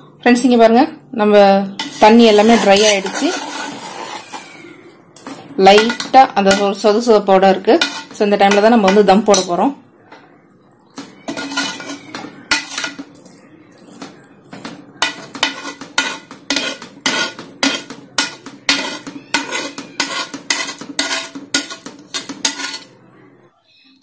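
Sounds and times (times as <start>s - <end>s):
metal spatula scraping a metal pot: 1.7s - 4.7s, 5.6s - 9.6s, 11.0s - 13.2s, 15.0s - 23.0s.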